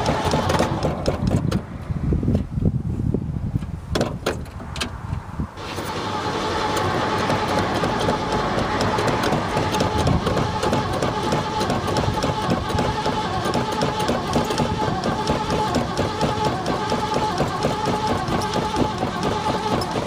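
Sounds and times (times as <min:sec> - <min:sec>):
engine cranking: 0:00.0 - 0:01.6, 0:05.6 - 0:20.0
constant whine: 0:04.3 - 0:20.0.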